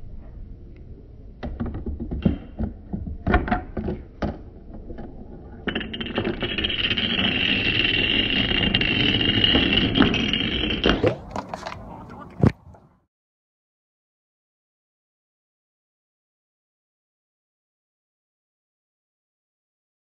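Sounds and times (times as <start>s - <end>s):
gumball rolling down wooden ramp: 1.4s - 12.7s
dominoes toppling clatter: 5.7s - 10.8s.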